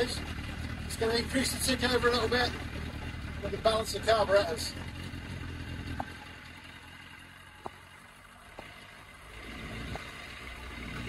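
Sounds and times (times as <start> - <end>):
motorcycle engine idling: 0.0 - 11.0.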